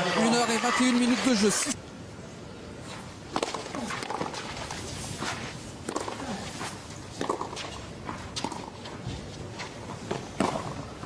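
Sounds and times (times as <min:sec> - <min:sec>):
racquet striking ball: 0:05.8 - 0:06.2, 0:07.2 - 0:08.8, 0:10.1 - 0:10.8
ball bouncing: 0:05.9 - 0:06.2, 0:07.2 - 0:08.9, 0:10.1 - 0:10.8.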